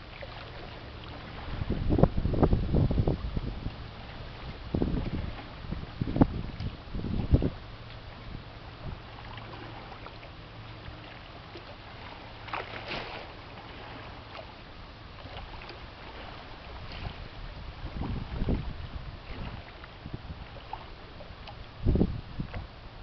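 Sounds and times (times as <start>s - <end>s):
wind buffeting microphone: 0.0s - 9.9s, 15.2s - 23.0s
ship engine drone: 0.0s - 12.6s.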